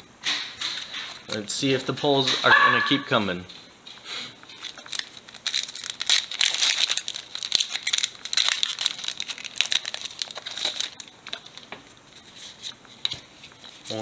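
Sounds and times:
foil wrapper crinkling: 4.5s - 11.7s.

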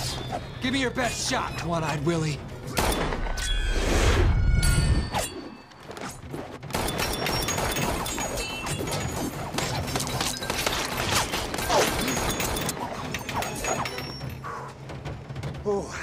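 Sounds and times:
film score music: 0.0s - 16.0s
gunshots: 6.6s - 13.6s.

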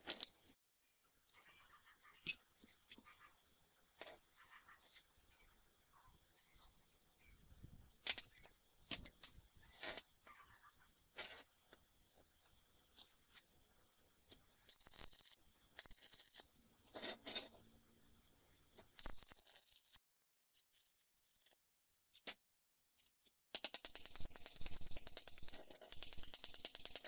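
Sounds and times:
metal scrapes: 14.7s - 17.6s.

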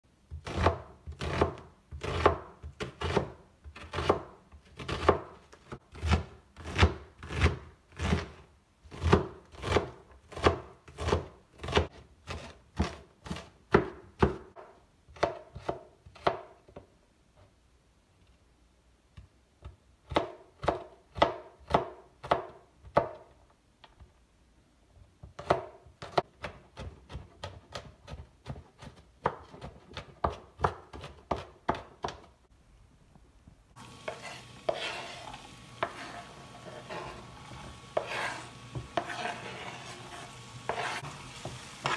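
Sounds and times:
knife chopping on wooden board: 0.3s - 16.6s, 20.1s - 23.2s, 25.4s - 32.3s, 34.0s - 35.2s, 35.8s - 37.3s, 38.0s - 41.9s.

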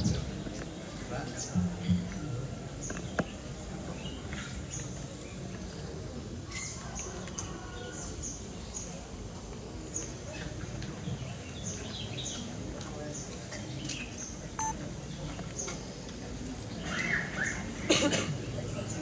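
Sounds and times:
low background noise: 0.0s - 19.0s
small birds chirping: 9.8s - 17.7s.

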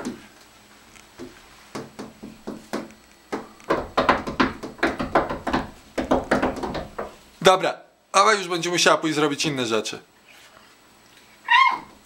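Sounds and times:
knocking on glass door: 1.2s - 7.2s.

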